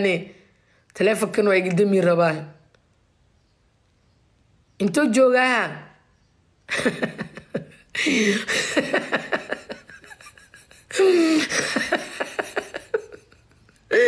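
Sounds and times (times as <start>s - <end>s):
woman laughing breathily: 6.7s - 14.0s.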